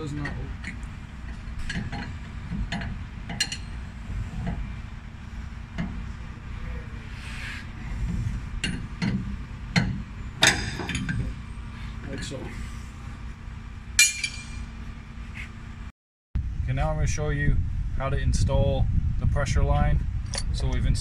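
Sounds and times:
metallic clicks of tools: 0:20.3 - 0:20.6.

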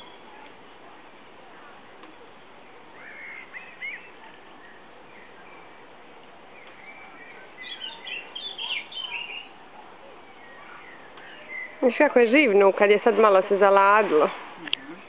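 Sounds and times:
steady background noise: 0:00.0 - 0:15.0
small birds chirping: 0:02.8 - 0:12.3.

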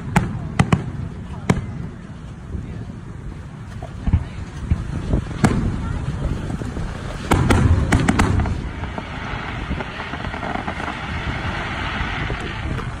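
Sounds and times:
steady rushing noise: 0:00.0 - 0:13.0
firework shells bursting: 0:06.9 - 0:13.0.

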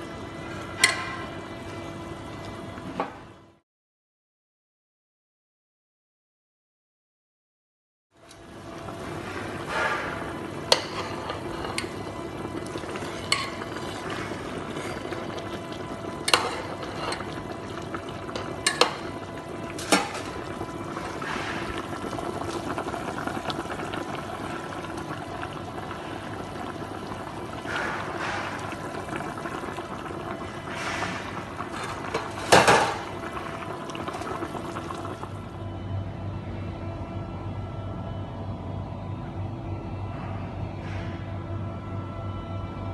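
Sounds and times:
soup boiling in a pot: 0:00.0 - 0:03.6, 0:08.2 - 0:35.9
low hum: 0:08.2 - 0:42.9.

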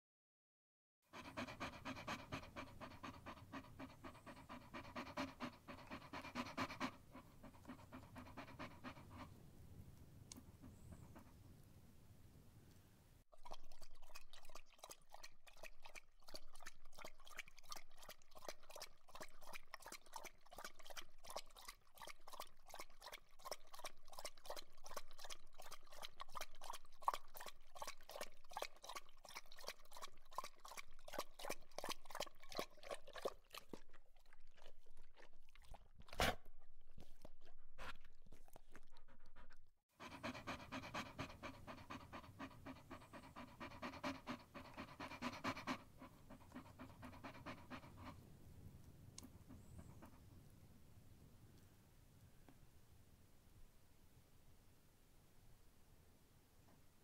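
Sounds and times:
dog panting: 0:01.1 - 0:09.4, 0:10.5 - 0:11.4, 0:16.3 - 0:48.2, 0:49.2 - 0:50.2.

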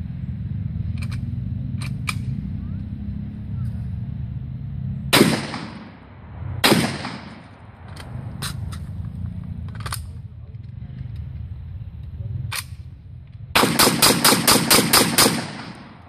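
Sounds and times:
shotgun shots echoing: 0:05.1 - 0:07.8, 0:13.6 - 0:16.0.

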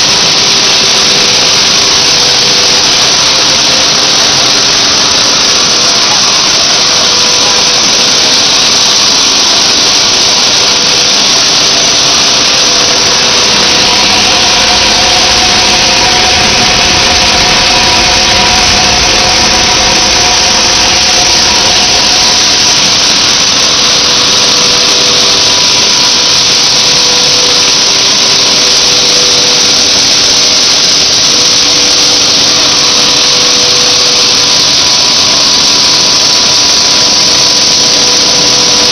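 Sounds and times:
blower rushing air: 0:00.0 - 0:38.9
faint steady hums: 0:12.4 - 0:24.1.

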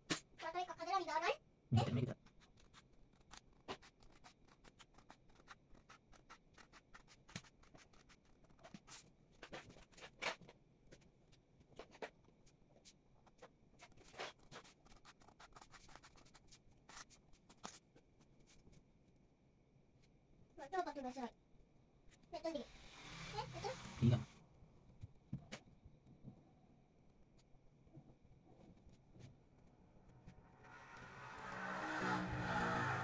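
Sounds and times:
scissors snipping paper: 0:02.2 - 0:10.4, 0:13.2 - 0:17.8.

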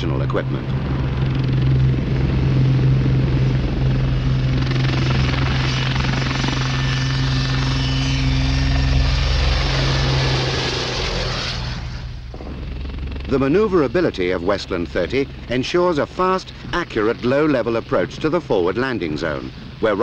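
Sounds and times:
helicopter rotor drone: 0:00.0 - 0:20.0
high turbine whine: 0:00.0 - 0:20.0.

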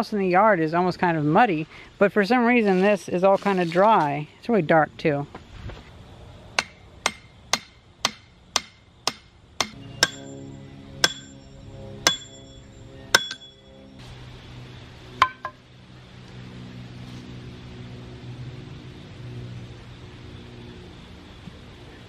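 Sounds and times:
hammer clanking on metal rod: 0:06.6 - 0:10.4, 0:11.0 - 0:11.4, 0:12.1 - 0:12.4, 0:13.2 - 0:13.5.

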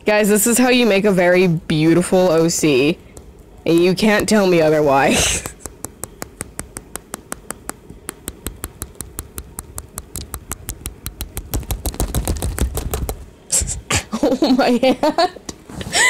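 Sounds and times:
fingertip tapping on touchscreen: 0:03.1 - 0:04.6, 0:05.3 - 0:13.2.

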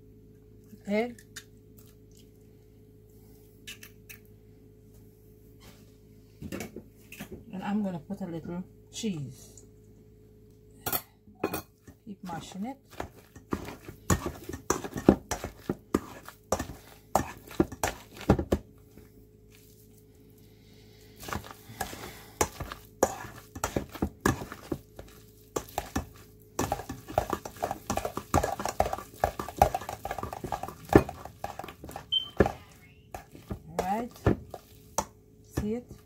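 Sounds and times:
potato masher knocking on steel bowl: 0:12.9 - 0:18.6, 0:21.2 - 0:36.0.

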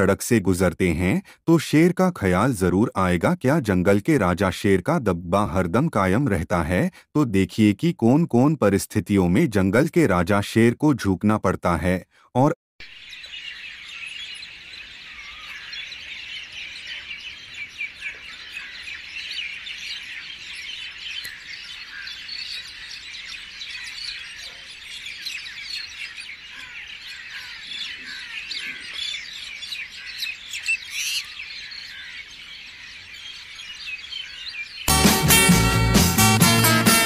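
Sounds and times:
small birds chirping: 0:00.0 - 0:10.1, 0:10.8 - 0:37.0.

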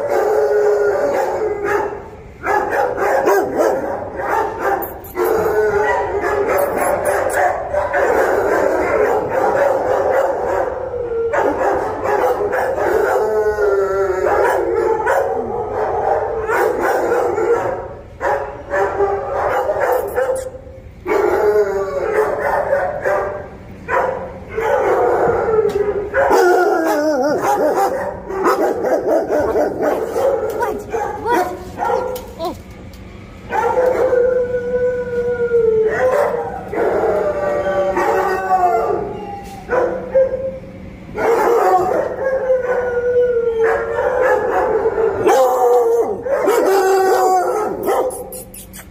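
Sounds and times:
dogs barking: 0:00.0 - 0:34.4, 0:35.8 - 0:43.0, 0:43.6 - 0:48.8
dogs howling: 0:00.0 - 0:48.8.

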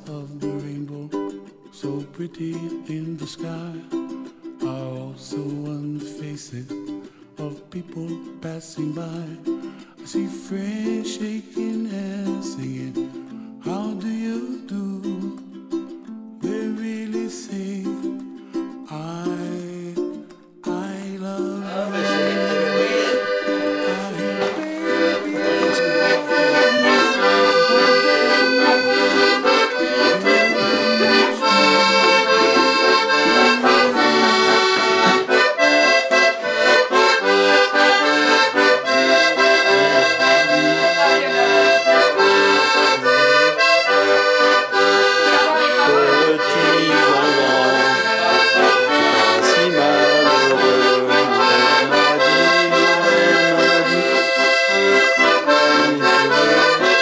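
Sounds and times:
accordion music: 0:00.0 - 0:01.6, 0:21.4 - 0:57.0.

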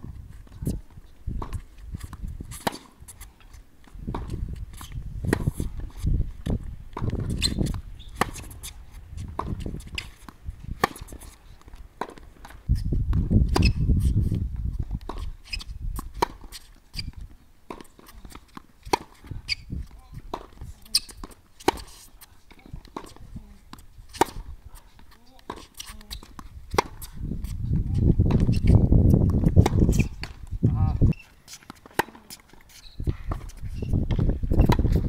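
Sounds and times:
shoes moving on court: 0:00.0 - 0:35.0
tennis racquets striking ball: 0:01.4 - 0:03.2, 0:07.0 - 0:12.6, 0:15.0 - 0:27.1, 0:28.2 - 0:30.5, 0:31.1 - 0:35.0
tennis ball bouncing: 0:03.8 - 0:04.4, 0:05.2 - 0:12.6, 0:14.9 - 0:27.1, 0:28.2 - 0:30.5, 0:31.5 - 0:35.0.

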